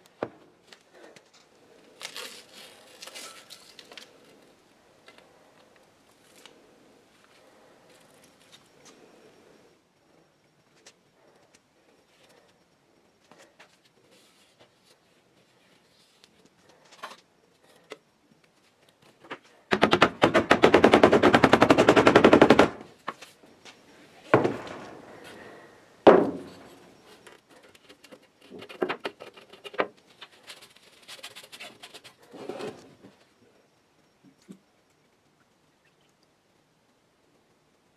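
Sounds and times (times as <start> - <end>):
rapid rattling knocks: 19.7 - 22.8, 24.3 - 25.0.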